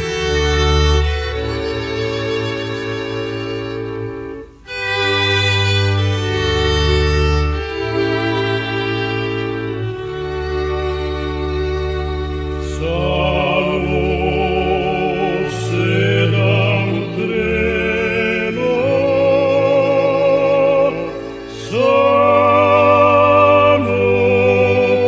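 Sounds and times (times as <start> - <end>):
person singing with vibrato: 12.6 - 25.0.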